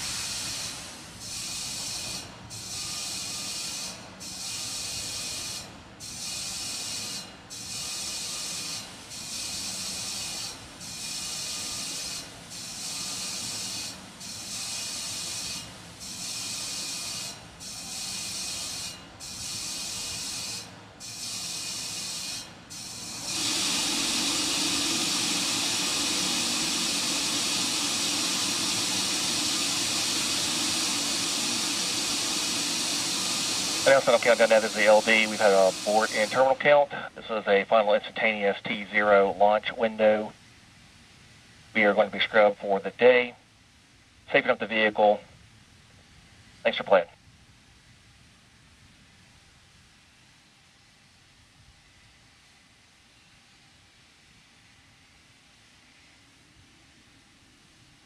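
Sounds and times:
gas venting hiss: 0:00.0 - 0:37.5.

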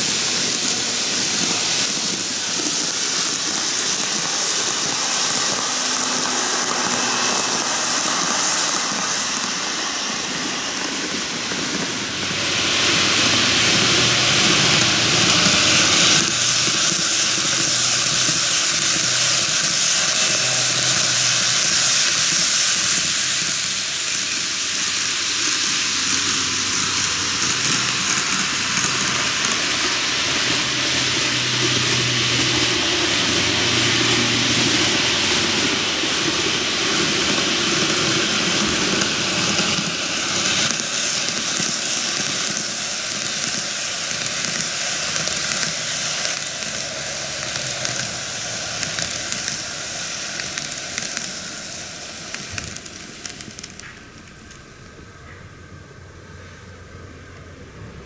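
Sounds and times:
low motor hum: 0:00.0 - 0:24.8, 0:25.8 - 0:41.6
small wheels rolling on rail: 0:00.0 - 0:58.0.

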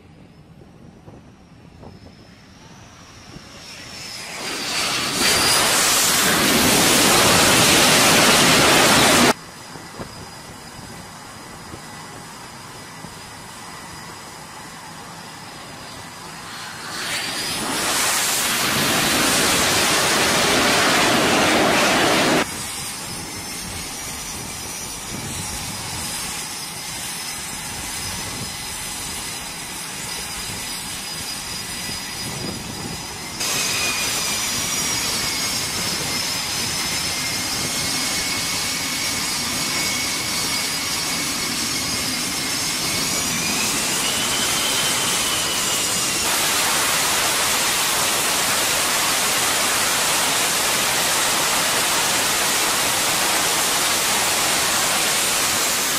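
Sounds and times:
jet flying low overhead: 0:00.0 - 0:55.9
jet turbofans whining: 0:00.0 - 0:55.9.

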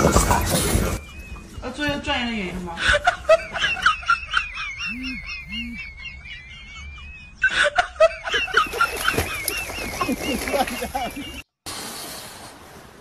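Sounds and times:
high-pitched giggling laughter: 0:02.8 - 0:11.4.

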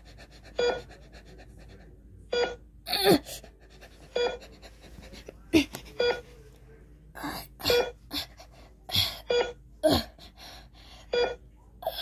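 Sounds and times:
heart monitor beeps: 0:00.6 - 0:00.9, 0:02.3 - 0:02.6, 0:04.2 - 0:04.4, 0:05.9 - 0:06.2, 0:07.6 - 0:08.0, 0:09.2 - 0:09.6, 0:11.0 - 0:11.4.

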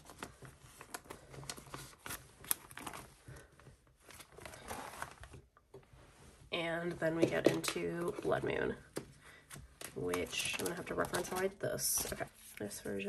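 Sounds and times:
plastic sleeves rustling and clicking: 0:00.0 - 0:12.8.

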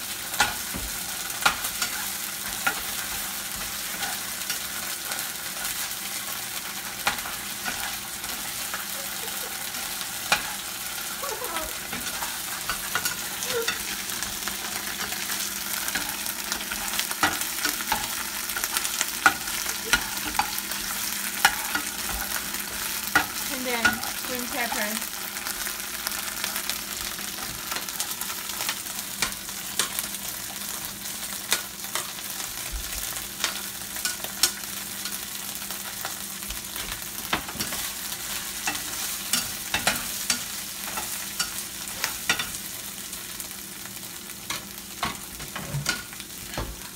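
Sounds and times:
food sizzling in oil: 0:00.0 - 0:46.9
spatula scraping pan: 0:00.3 - 0:26.6.

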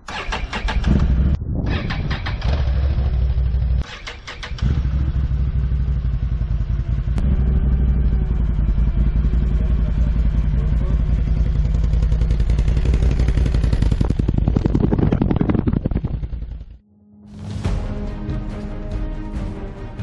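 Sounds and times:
atv engine cranking and idling: 0:02.2 - 0:15.0.

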